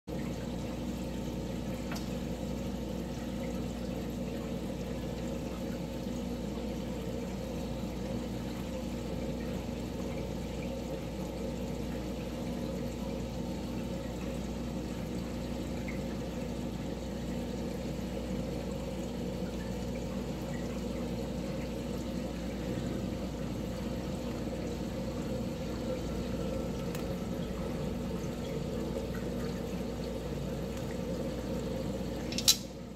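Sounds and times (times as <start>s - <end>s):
low pump hum: 0.0s - 32.9s
water pouring and trickling: 0.1s - 32.9s.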